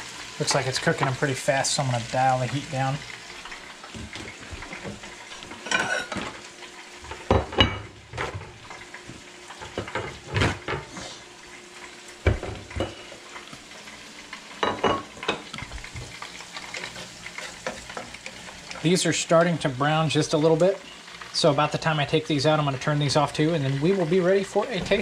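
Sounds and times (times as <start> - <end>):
hot oil sizzling: 0.0 - 25.0
kitchen utensils clattering: 3.9 - 8.9, 9.5 - 11.0, 12.2 - 13.4, 14.6 - 19.1.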